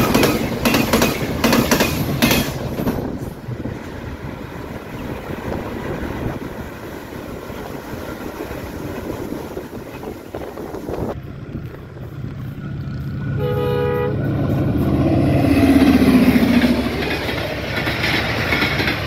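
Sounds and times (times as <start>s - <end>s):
diesel locomotive droning: 0.0s - 19.0s
train rumbling and rattling: 0.0s - 19.0s
train horn: 13.2s - 16.9s.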